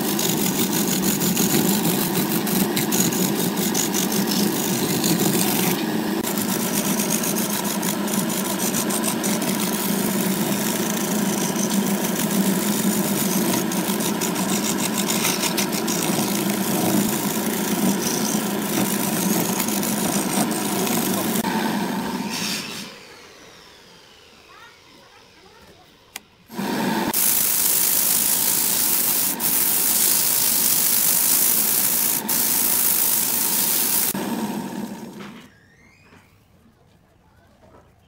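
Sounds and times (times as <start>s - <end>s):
turning tool scraping wood: 0.0s - 21.5s, 27.1s - 34.2s
wood lathe humming: 0.0s - 22.3s, 26.5s - 35.3s.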